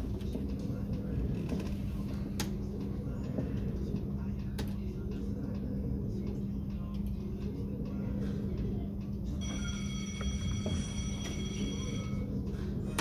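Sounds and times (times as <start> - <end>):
low hum: 0.0 - 13.0
slot machine win chime: 9.4 - 12.4.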